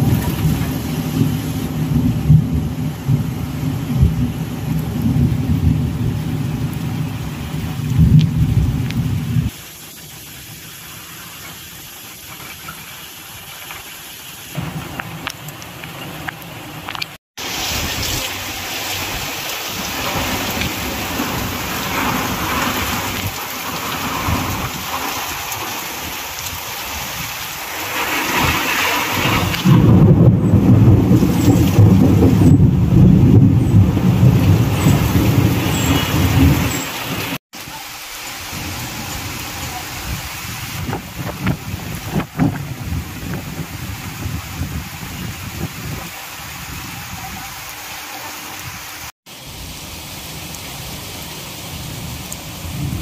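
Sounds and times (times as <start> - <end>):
heavy rain pouring: 0.0 - 53.0.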